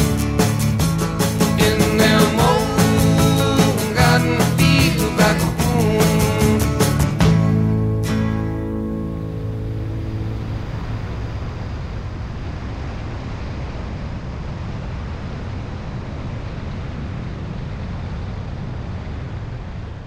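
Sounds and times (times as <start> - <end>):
wind rushing over microphone: 8.8 - 20.0.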